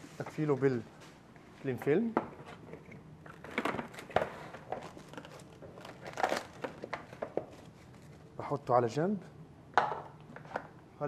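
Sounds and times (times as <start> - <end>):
cling film crinkling: 3.3 - 8.3.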